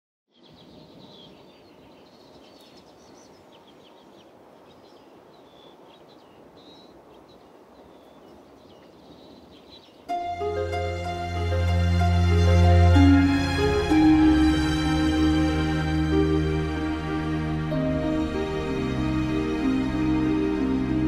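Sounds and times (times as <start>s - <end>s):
small birds chirping: 0.3s - 11.2s
steady background hiss: 0.7s - 21.0s.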